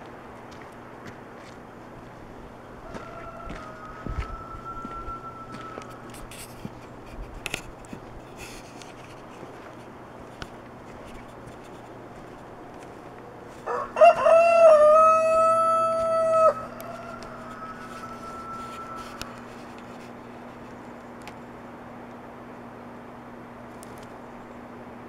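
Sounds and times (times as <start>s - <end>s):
rooster crowing: 2.5s - 6.8s, 13.5s - 20.1s.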